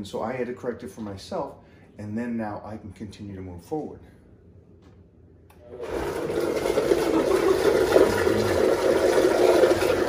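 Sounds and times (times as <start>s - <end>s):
blender motor running: 5.6s - 10.0s.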